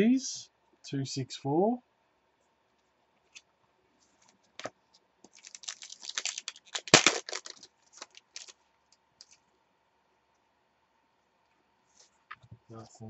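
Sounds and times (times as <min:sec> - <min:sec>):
cards rustling and clicking: 0:04.2 - 0:08.6, 0:09.2 - 0:09.4
foil pack tearing and crinkling: 0:05.3 - 0:08.6.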